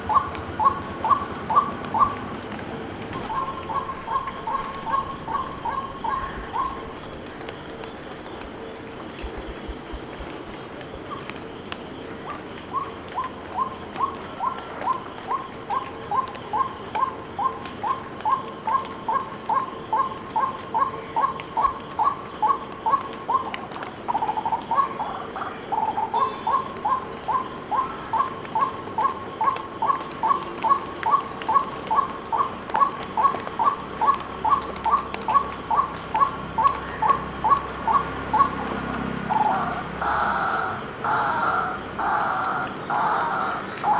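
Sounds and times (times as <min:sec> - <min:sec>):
waterhen calling: 0:03.2 - 0:07.2.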